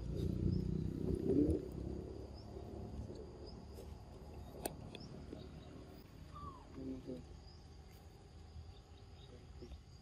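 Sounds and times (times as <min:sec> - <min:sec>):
low cooing calls: 0:05.6 - 0:07.2.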